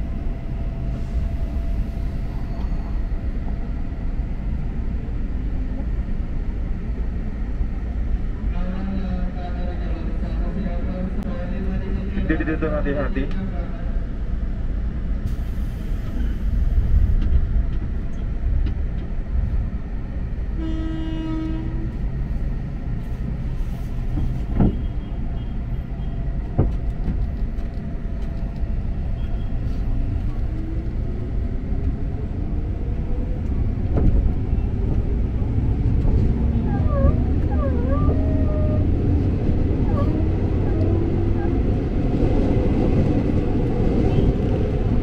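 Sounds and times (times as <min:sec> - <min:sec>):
electric train rumbling: 0:00.0 - 0:45.0
train horn: 0:20.6 - 0:22.0.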